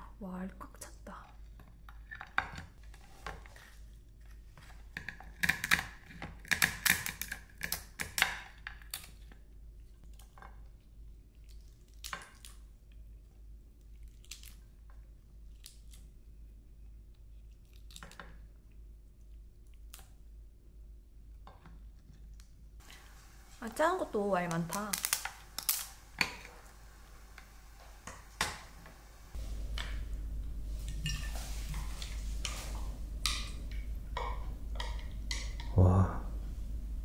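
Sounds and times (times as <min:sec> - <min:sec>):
crab shell cracking: 0:14.0 - 0:14.8, 0:24.6 - 0:26.4.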